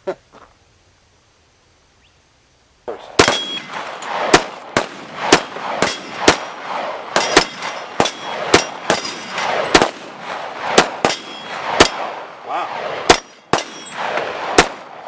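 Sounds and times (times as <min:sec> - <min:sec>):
rapid pistol fire: 0:03.2 - 0:15.0
bullets clanging on steel plates: 0:07.2 - 0:09.8, 0:11.0 - 0:12.0, 0:13.1 - 0:14.0.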